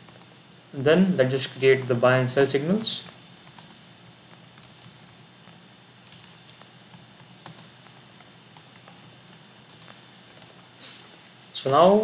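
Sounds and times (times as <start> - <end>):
faint keyboard typing: 0.0 - 0.4, 2.9 - 10.6.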